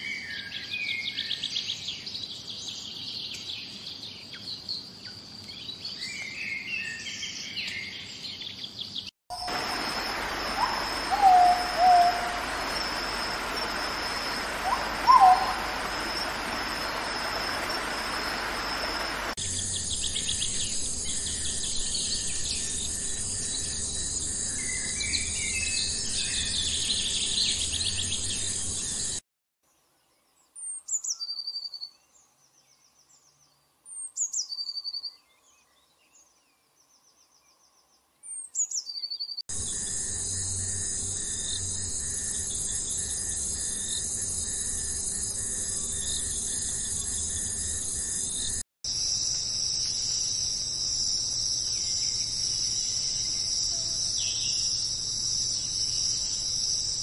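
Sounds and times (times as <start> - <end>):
birds chirping: 7.6 - 20.4
steady hiss: 9.3 - 19.7
high insect drone: 9.3 - 29.1, 39.5 - 57.0
short low loud calls: 9.5 - 19.3
falling bird whistles: 10.6 - 12.4, 14.6 - 15.7.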